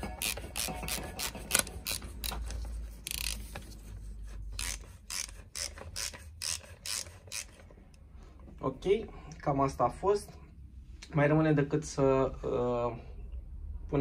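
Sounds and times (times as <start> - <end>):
ratchet wrench clicking: 0.2 - 3.5, 4.6 - 7.6.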